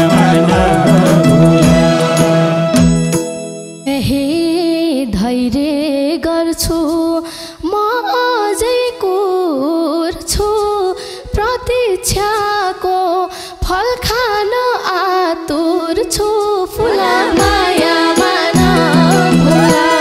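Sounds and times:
drum strokes: 0.0s - 3.8s, 16.8s - 20.0s
woman singing folk melody: 3.9s - 20.0s.

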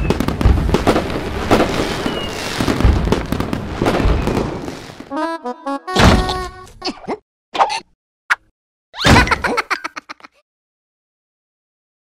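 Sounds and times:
firework bangs: 0.0s - 5.1s
firework crackling: 0.0s - 5.1s.

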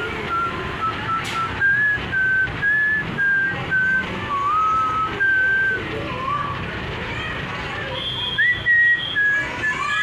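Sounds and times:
person whistling a tune: 0.3s - 5.8s, 8.2s - 9.9s.

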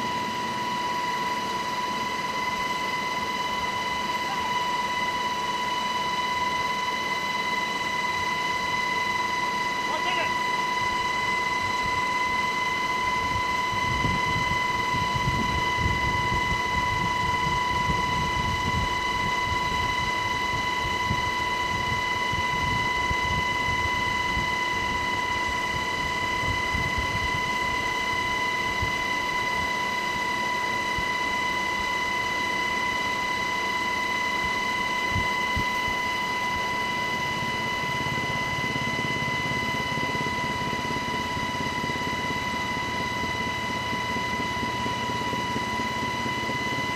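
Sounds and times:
helicopter turbine whine: 0.0s - 46.9s
rotor and wind rumble: 9.9s - 29.7s, 34.5s - 46.9s.

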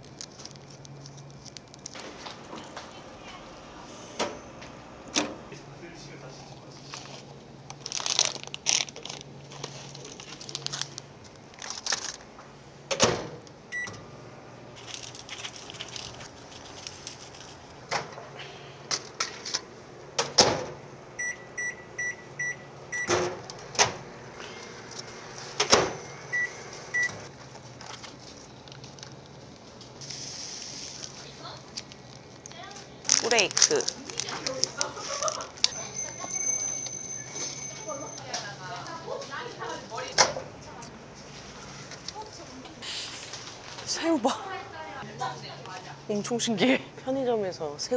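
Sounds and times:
packaging being handled: 0.0s - 3.8s, 6.7s - 12.3s, 14.8s - 17.8s, 27.3s - 35.8s
keypad beeps: 13.7s - 14.0s, 21.2s - 23.2s, 26.3s - 27.2s.

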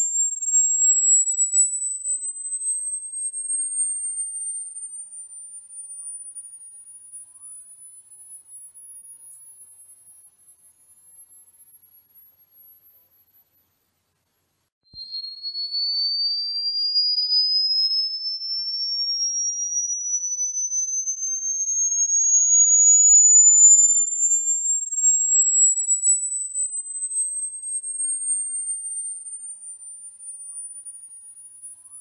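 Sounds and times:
high-pitched rising sine tone: 0.0s - 4.8s, 15.0s - 29.5s.

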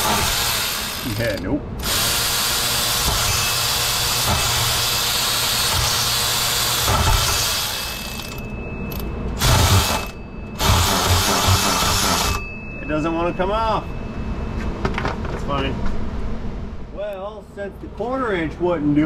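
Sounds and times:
electric ratchet running: 0.0s - 12.4s.

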